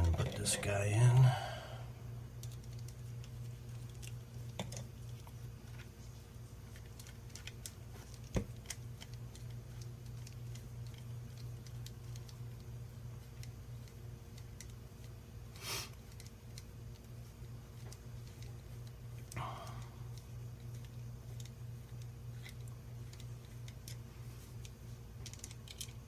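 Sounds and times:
low steady hum: 0:00.0 - 0:26.0
screwdriver ticks and clicks on plastic: 0:20.1 - 0:24.0, 0:24.6 - 0:26.0.

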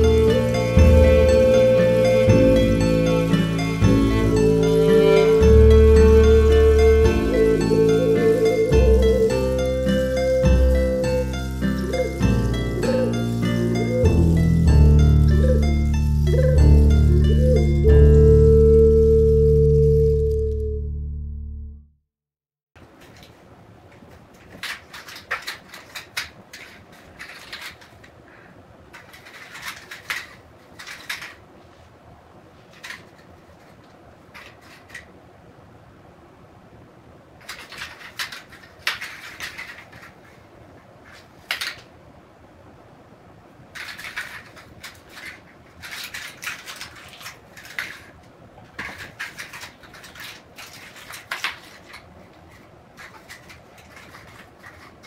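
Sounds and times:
plastic toy clicking and skidding: 0:24.3 - 0:28.2, 0:28.9 - 0:31.4, 0:32.7 - 0:35.1, 0:37.4 - 0:40.4, 0:41.0 - 0:41.9, 0:43.7 - 0:55.0.

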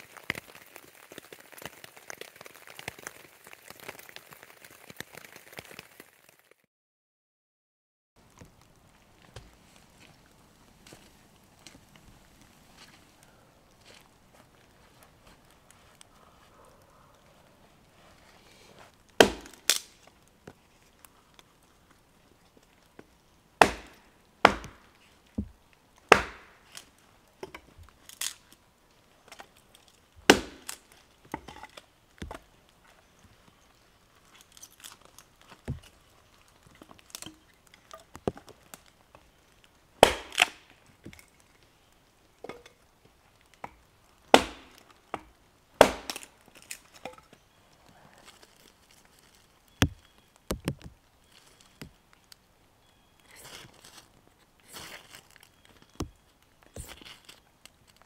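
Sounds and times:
hatchet chopping wood: 0:19.2 - 0:19.9, 0:23.6 - 0:25.5, 0:26.1 - 0:26.6, 0:30.3 - 0:30.8, 0:40.0 - 0:40.6, 0:44.3 - 0:46.3, 0:49.8 - 0:50.9
split wood pieces knocking: 0:19.2 - 0:19.9, 0:23.6 - 0:26.8, 0:30.3 - 0:32.4, 0:43.6 - 0:47.4, 0:49.8 - 0:52.0, 0:54.8 - 0:56.2.

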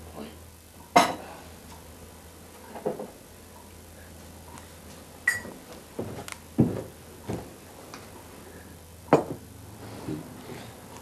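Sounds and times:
short ringing tone: 0:05.3 - 0:05.5.

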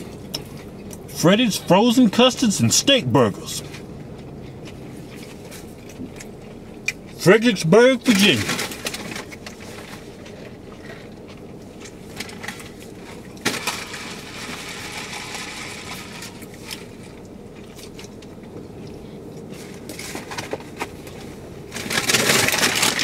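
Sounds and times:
car cabin hum: 0:00.0 - 0:14.5
clicks and rustles of eating: 0:03.6 - 0:07.2, 0:08.2 - 0:23.0.

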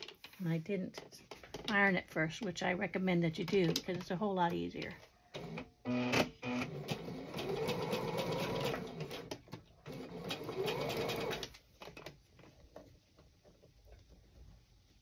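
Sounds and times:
sewing machine stitching: 0:05.4 - 0:11.6.

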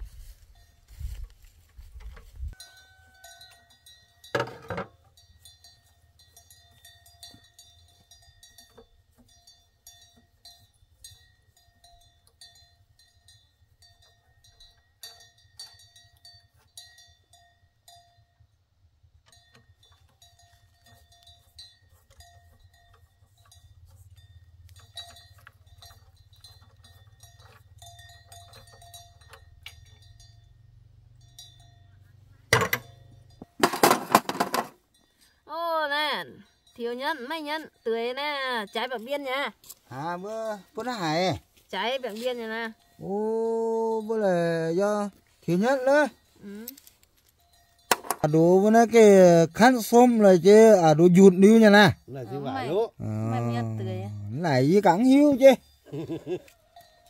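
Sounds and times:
hand tools clinking and scraping: 0:00.0 - 0:18.1, 0:19.2 - 0:35.4, 0:38.0 - 0:57.0
metallic ringing: 0:02.5 - 0:57.0.

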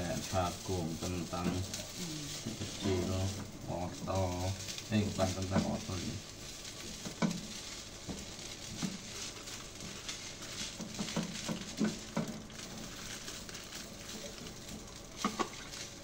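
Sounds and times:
food sizzling in a pan: 0:00.0 - 0:16.0
spatula scraping and knocking pan: 0:05.5 - 0:13.0.

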